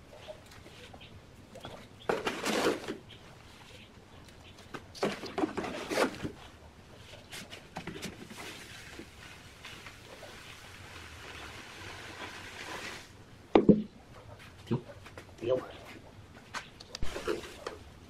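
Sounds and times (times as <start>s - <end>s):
sand pouring hiss: 8.3s - 13.2s.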